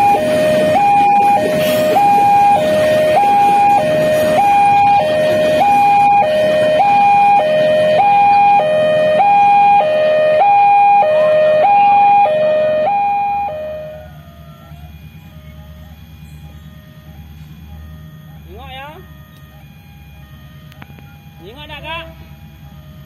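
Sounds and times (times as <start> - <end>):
level crossing two-tone alarm: 0.0 - 23.0
outdoor background noise: 0.0 - 23.0.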